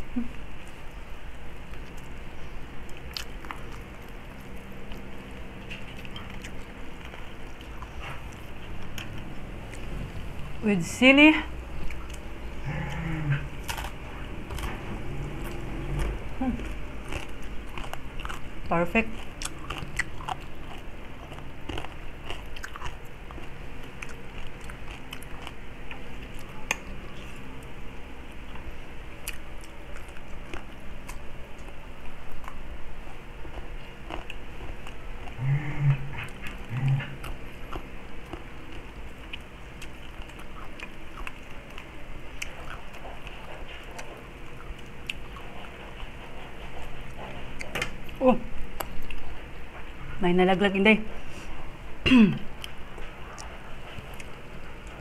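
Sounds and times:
chewing crispy pork: 0:00.0 - 0:55.0
short low hums: 0:07.8 - 0:18.6, 0:35.2 - 0:38.0
crunching fried skin: 0:11.7 - 0:27.8.

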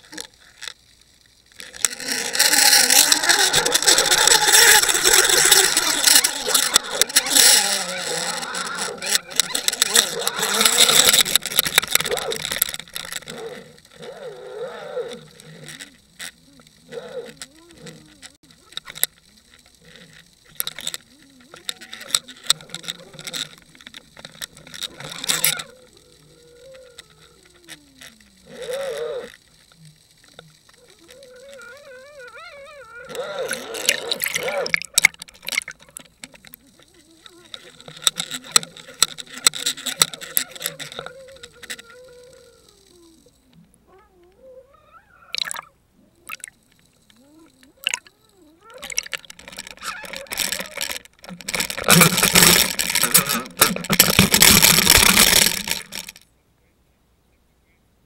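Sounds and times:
underwater water noise: 0:00.0 - 0:56.3
scattered knocks and clicks: 0:01.6 - 0:14.0, 0:33.1 - 0:42.5, 0:48.8 - 0:56.2
faint wavering tones: 0:01.6 - 0:56.4.

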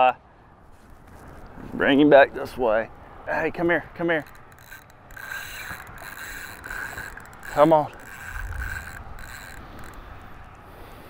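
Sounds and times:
fishing reel whining: 0:03.3 - 0:10.8.

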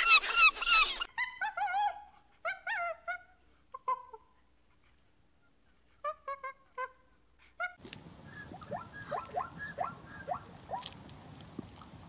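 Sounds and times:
outdoor background noise: 0:00.0 - 0:12.0
monkey calls: 0:07.6 - 0:11.0.

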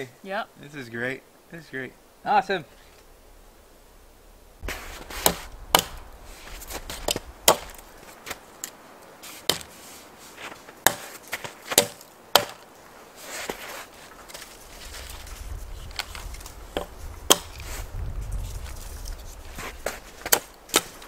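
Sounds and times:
hatchet chopping wood: 0:04.7 - 0:06.1, 0:06.7 - 0:07.8, 0:09.4 - 0:09.8, 0:10.8 - 0:12.6, 0:16.8 - 0:17.6, 0:20.2 - 0:21.0.

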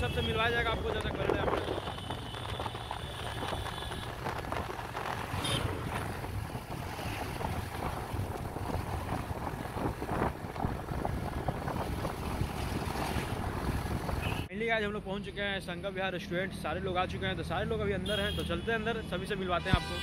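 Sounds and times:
wind buffeting microphone: 0:00.6 - 0:14.5.

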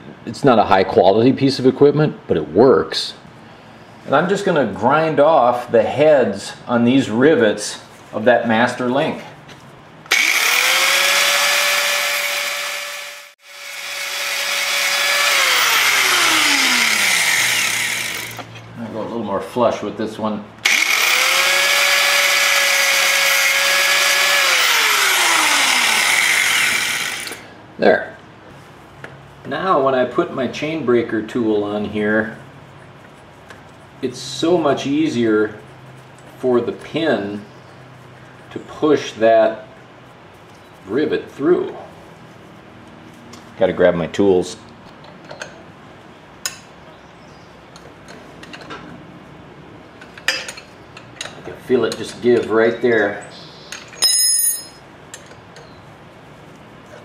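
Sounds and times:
grinder disc spinning down: 0:10.1 - 0:18.5, 0:20.6 - 0:27.4
angle grinder grinding metal: 0:10.1 - 0:18.6, 0:20.6 - 0:27.5.

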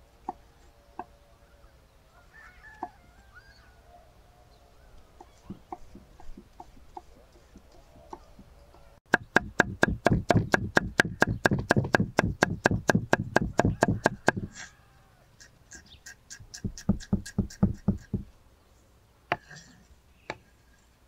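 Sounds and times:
knife chopping on wooden board: 0:09.1 - 0:14.5.

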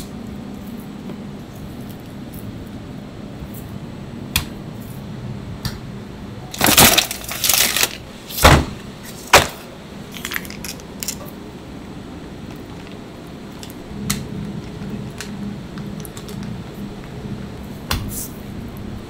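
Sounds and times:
plastic bag crinkling: 0:06.5 - 0:08.0.

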